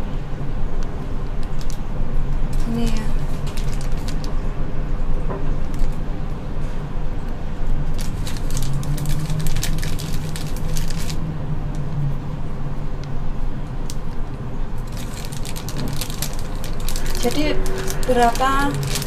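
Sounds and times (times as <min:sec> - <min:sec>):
plastic bag crinkling: 0:02.6 - 0:04.3, 0:07.9 - 0:11.2, 0:14.8 - 0:19.0.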